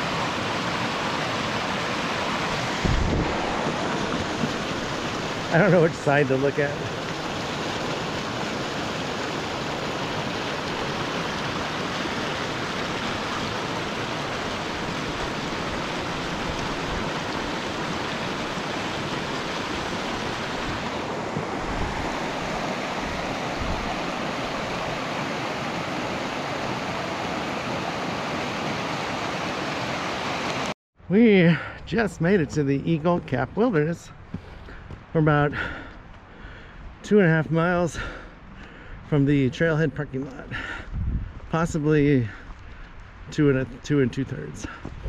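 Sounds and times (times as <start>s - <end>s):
creek rushing over rocks: 0.0s - 30.8s.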